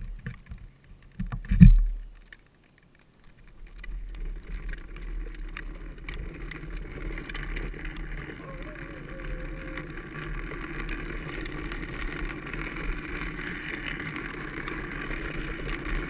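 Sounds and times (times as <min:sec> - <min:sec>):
wheels rolling on wet asphalt: 0:00.0 - 0:16.0.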